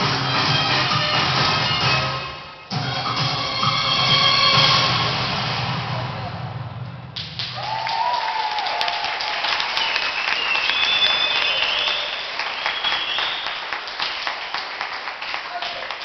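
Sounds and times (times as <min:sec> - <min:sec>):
audience applauding: 0:07.2 - 0:16.0
high whistles: 0:09.6 - 0:14.7.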